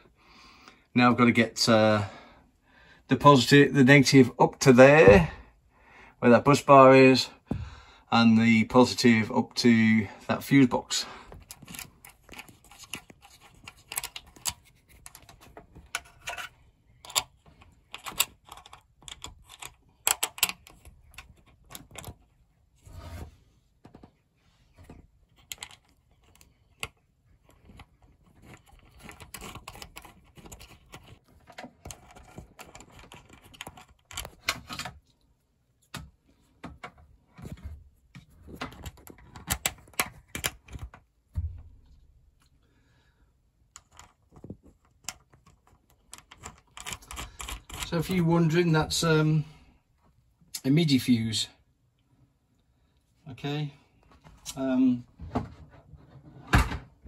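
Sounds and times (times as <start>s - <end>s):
fingers clicking and tapping parts: 11.4s - 22.4s, 24.8s - 35.2s, 35.8s - 41.2s, 43.6s - 48.2s.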